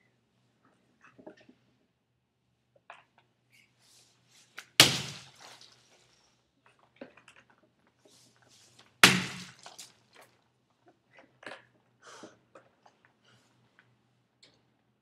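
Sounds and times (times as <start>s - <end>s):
loud sharp thud: 4.8s - 5.4s, 9.0s - 9.6s.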